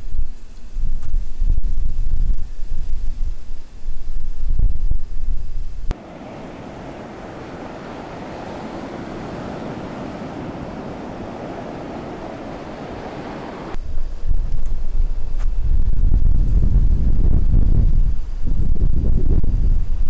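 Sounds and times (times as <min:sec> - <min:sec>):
wind buffeting microphone: 0:00.8 - 0:20.0
ocean surf: 0:05.9 - 0:13.8.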